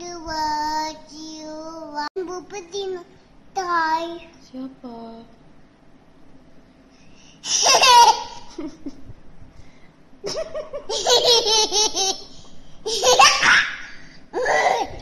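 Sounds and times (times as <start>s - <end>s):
toddler laughing: 7.4s - 8.8s, 10.3s - 15.0s.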